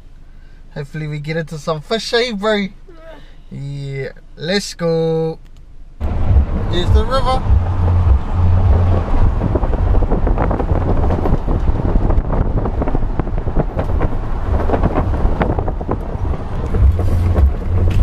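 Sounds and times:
car road noise: 0.0 - 18.0
wind buffeting microphone: 6.0 - 18.0.

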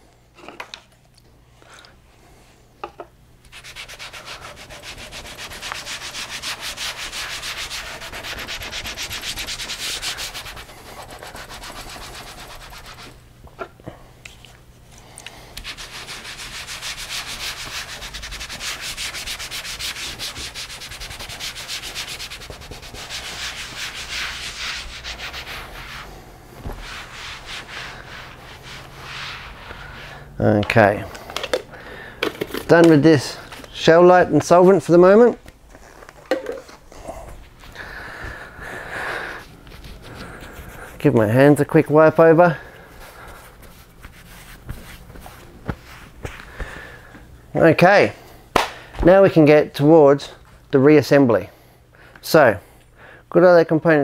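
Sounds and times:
cloth rag scrubbing a mat: 3.5 - 13.2, 15.6 - 31.0, 39.2 - 46.5.

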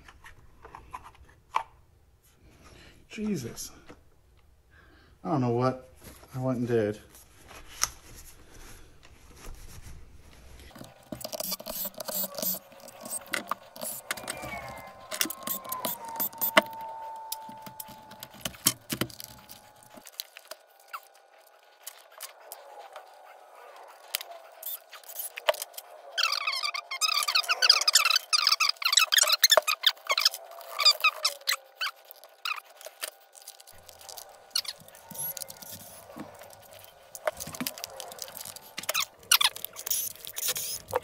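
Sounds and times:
busy squeaking: 10.6 - 41.0
faint whine sliding down in pitch: 10.8 - 27.6.

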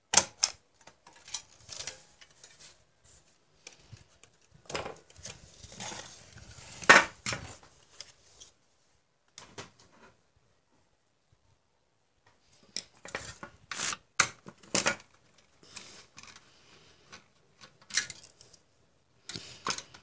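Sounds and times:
metal parts clicking and clattering: 0.4 - 2.6, 17.8 - 18.6.

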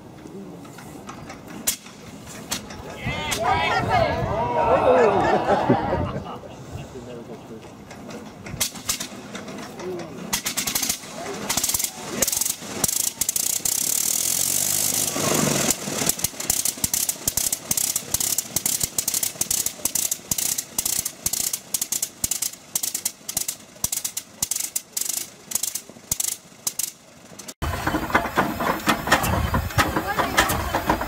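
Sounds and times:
aircraft engine firing pops: 8.4 - 9.6, 10.3 - 14.0.

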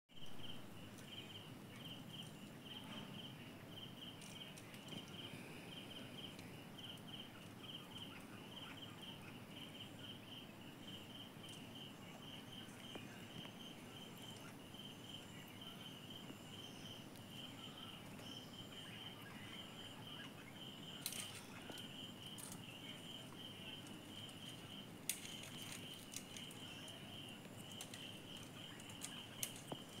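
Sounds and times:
insect chirping: 0.2 - 30.0
sharp clicks: 27.6 - 30.0.

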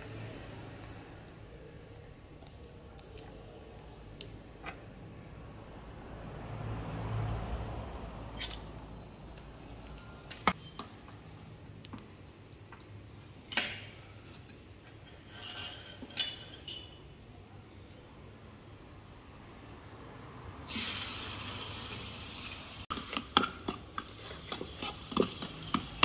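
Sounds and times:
glass bowls and spoons clicking: 16.0 - 17.0.

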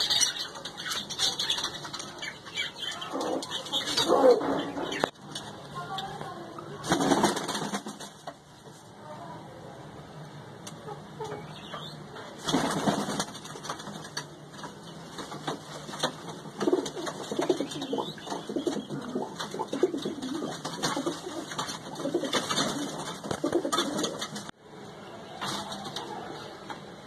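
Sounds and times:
pigeons cooing: 0.0 - 5.1, 16.5 - 24.5.

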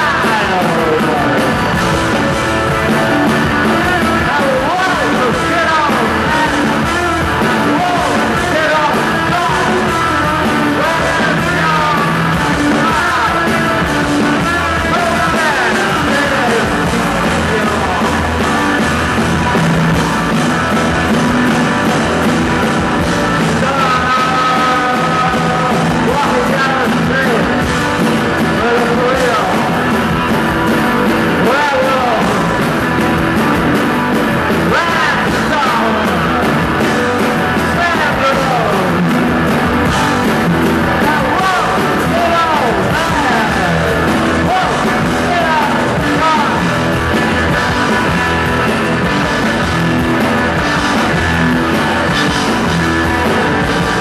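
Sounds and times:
bass guitar: 0.0 - 54.0
drums: 0.0 - 54.0
electric guitar: 0.0 - 54.0
keyboard: 0.0 - 54.0
shouted lead vocal: 0.0 - 54.0.

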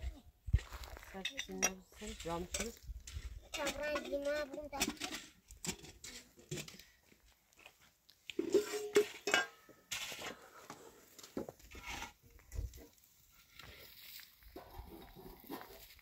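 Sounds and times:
dishes and cutlery clattering: 3.5 - 6.8, 8.4 - 10.2.

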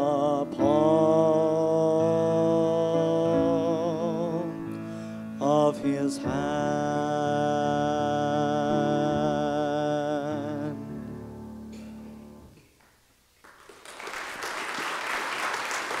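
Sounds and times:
person singing with vibrato: 0.0 - 11.6
audience applauding: 12.8 - 16.0.

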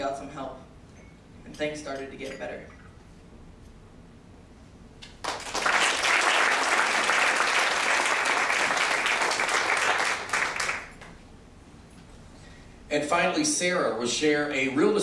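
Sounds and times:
audience applauding: 5.2 - 11.1.

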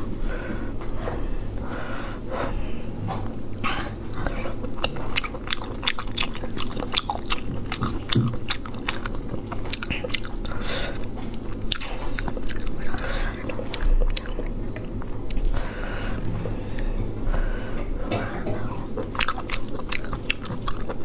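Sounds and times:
person chewing food: 3.1 - 21.0.

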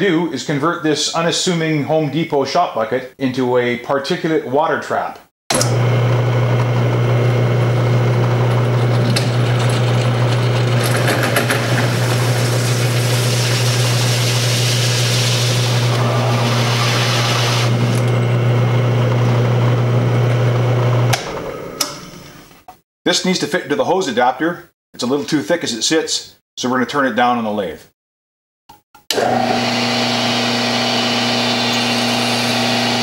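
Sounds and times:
motor winding down: 5.5 - 22.3, 29.1 - 33.0
drill press motor hum: 5.5 - 22.6, 29.1 - 33.0
hole saw cutting plastic: 8.2 - 18.2.

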